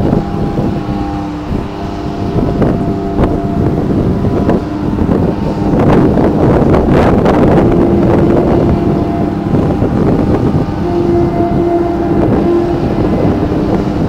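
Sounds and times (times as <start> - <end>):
electric train rumbling past: 0.0 - 14.0.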